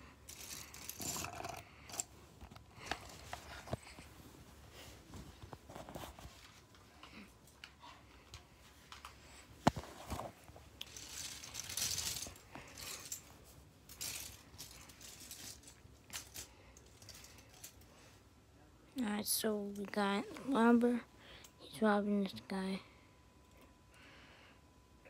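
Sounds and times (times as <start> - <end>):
rustling: 0.3 - 18.2.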